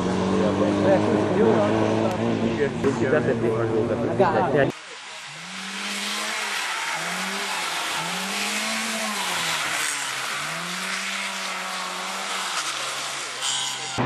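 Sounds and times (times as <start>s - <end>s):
rally car engine revving: 0.0s - 14.0s
tyres and road spray hiss: 4.7s - 13.4s.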